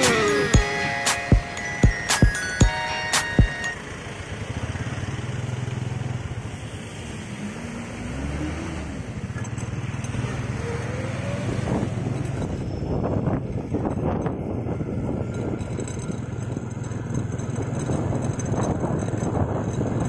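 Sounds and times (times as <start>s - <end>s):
motorcycle engine running: 0.0s - 6.7s, 11.7s - 20.0s
wind and road noise: 0.0s - 20.0s.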